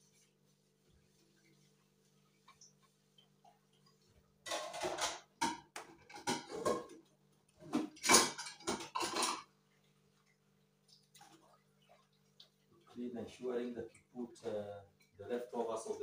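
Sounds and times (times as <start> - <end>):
dishes clattering in a sink: 4.4 - 9.6.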